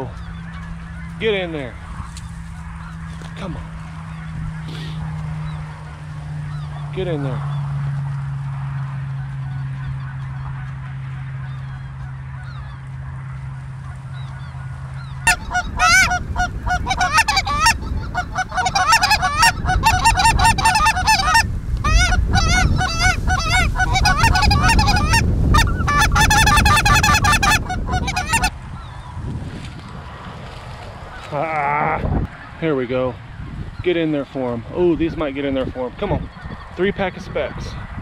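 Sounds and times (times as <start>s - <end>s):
geese honking: 0.0s - 7.6s, 8.8s - 29.0s.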